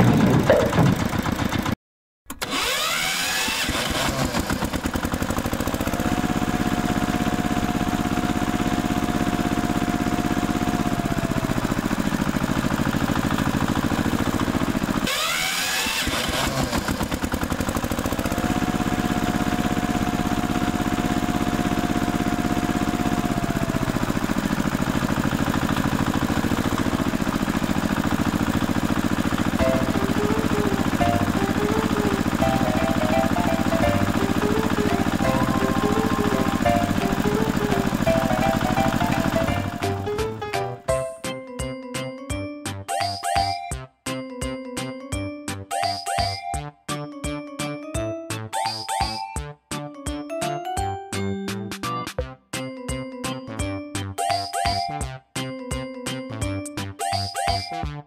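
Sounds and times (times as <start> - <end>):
vehicle engine revving and whining: 2.4 - 39.9
music: 29.5 - 58.0.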